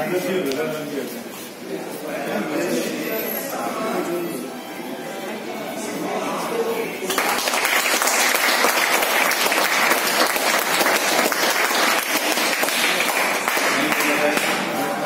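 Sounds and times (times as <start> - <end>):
people clapping: 7.1 - 15.0.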